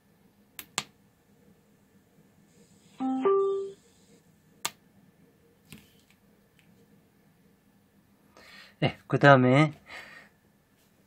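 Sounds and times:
two-note power-on chime: 0:03.0 - 0:03.8.

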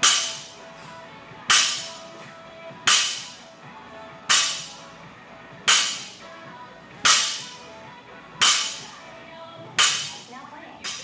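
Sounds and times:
metallic ring of bar and plates: 0:00.0 - 0:00.5, 0:01.5 - 0:01.9, 0:02.8 - 0:03.3, 0:04.3 - 0:04.7, 0:05.7 - 0:06.1, 0:08.4 - 0:08.8, 0:09.8 - 0:10.2.

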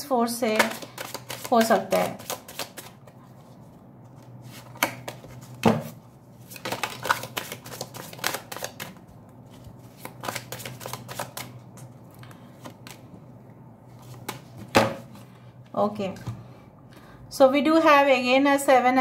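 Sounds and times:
cards being shuffled by hand: 0:00.5 - 0:11.9.

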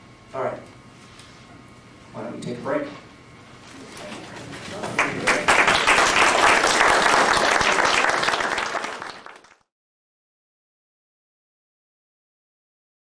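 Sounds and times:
audience applauding: 0:04.1 - 0:09.7.

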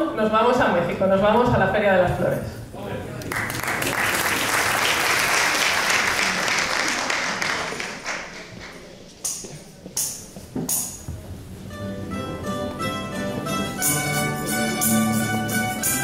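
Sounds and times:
audience applause: 0:03.2 - 0:08.9.

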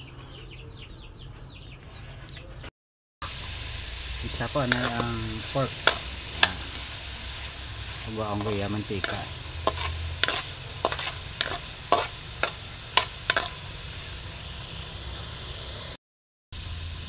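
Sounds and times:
meat sizzling in a wok: 0:03.2 - 0:16.0, 0:16.6 - 0:17.0
metal spatula scraping a pan: 0:04.4 - 0:14.2.

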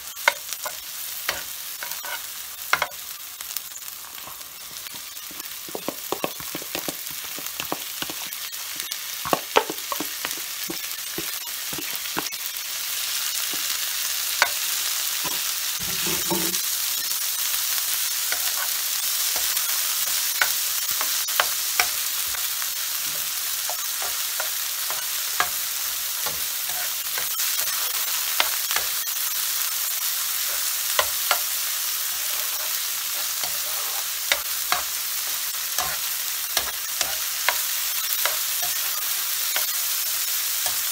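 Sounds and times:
meat and onion sizzling in pan: 0:00.0 - 0:40.9
spatula scraping on pan: 0:00.2 - 0:03.0, 0:04.0 - 0:12.3, 0:15.3 - 0:16.6, 0:30.4 - 0:39.9.

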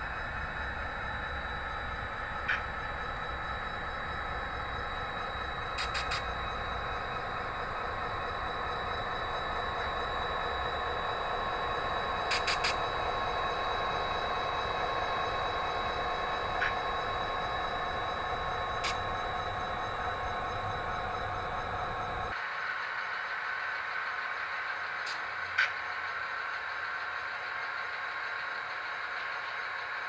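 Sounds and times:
model train running hum: 0:00.0 - 0:30.0
wheels clicking over rail joints: 0:05.6 - 0:06.4, 0:12.2 - 0:13.0.

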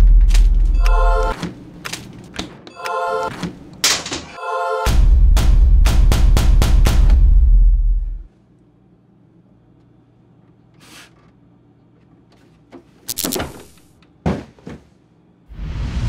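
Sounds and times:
low steady hum: 0:00.0 - 0:02.0, 0:04.9 - 0:14.1.

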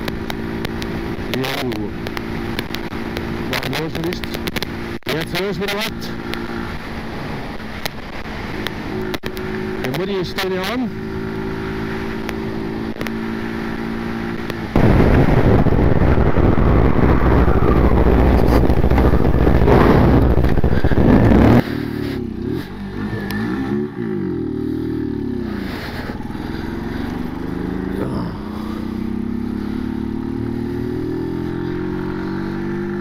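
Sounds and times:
motorcycle engine running: 0:00.0 - 0:33.0
wind roar on microphone: 0:14.3 - 0:24.1.

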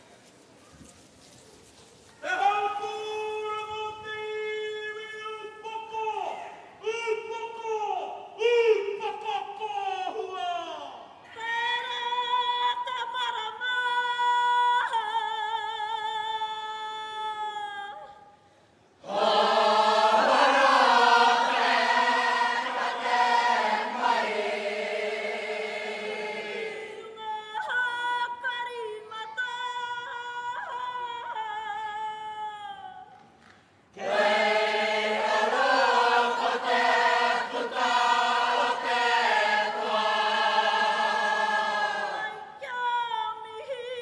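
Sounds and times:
woman singing with vibrato: 0:11.3 - 0:18.3, 0:26.7 - 0:33.2, 0:41.9 - 0:44.0
group singing in unison: 0:19.0 - 0:27.2, 0:34.0 - 0:42.6.

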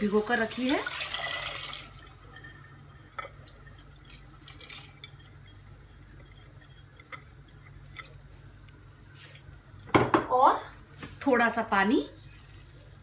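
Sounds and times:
low steady hum: 0:00.0 - 0:13.0
lentils dripping into gravy: 0:00.3 - 0:08.9, 0:12.0 - 0:13.0.

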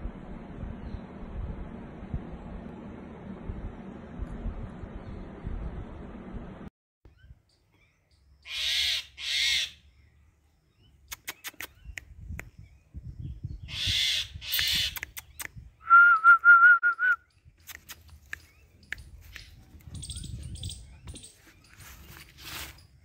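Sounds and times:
warbling whistle-like call: 0:15.8 - 0:17.2.

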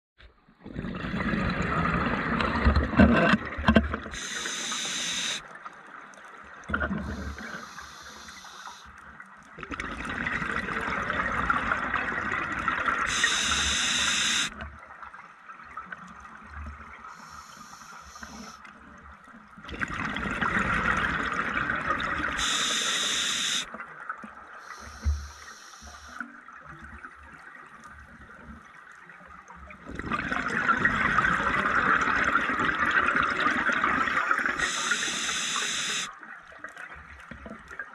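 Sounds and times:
exhaled bubbles gushing: 0:00.6 - 0:05.4, 0:09.6 - 0:14.6, 0:19.6 - 0:23.8, 0:29.7 - 0:36.1
regulator hissing inhalations: 0:04.2 - 0:05.4, 0:07.1 - 0:08.9, 0:13.1 - 0:14.5, 0:17.1 - 0:18.6, 0:22.4 - 0:23.7, 0:24.6 - 0:26.2, 0:34.6 - 0:36.1.

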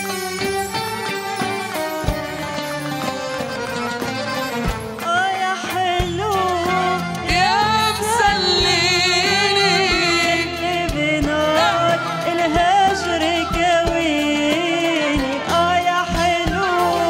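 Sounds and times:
live band with percussion: 0:00.0 - 0:17.0
woman singing: 0:04.9 - 0:17.0.

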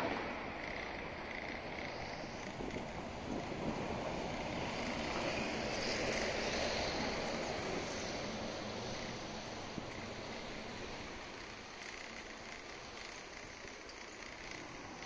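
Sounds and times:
wind over microphone: 0:00.0 - 0:11.4.

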